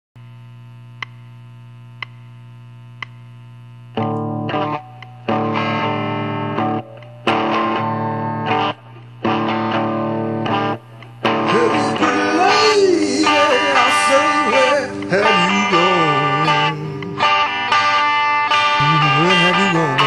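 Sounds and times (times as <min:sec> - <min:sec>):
amplifier hum: 0:00.2 - 0:20.0
distorted electric guitar chords: 0:00.2 - 0:20.0
faint clicks: 0:02.0 - 0:02.3, 0:03.0 - 0:03.3.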